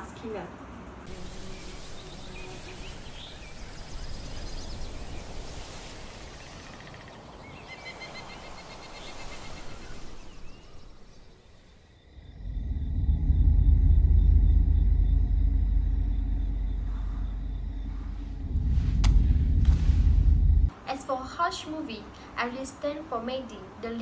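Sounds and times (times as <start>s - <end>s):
high-pitched whine: 1.0s - 5.2s, 12.2s - 20.7s
birds chirping: 1.1s - 19.5s
deep rumble: 12.1s - 20.7s.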